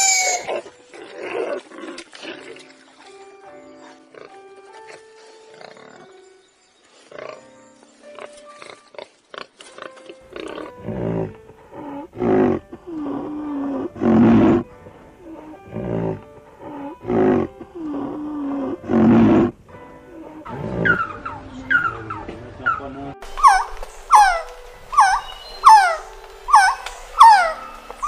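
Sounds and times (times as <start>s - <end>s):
rhinoceros calling: 0.0s - 2.6s, 9.9s - 28.0s.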